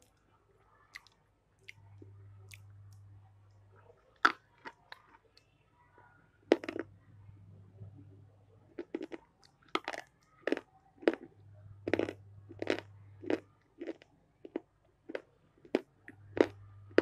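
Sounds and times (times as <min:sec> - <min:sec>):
person chewing crunchy food: 0:08.8 - 0:11.3, 0:11.9 - 0:17.0.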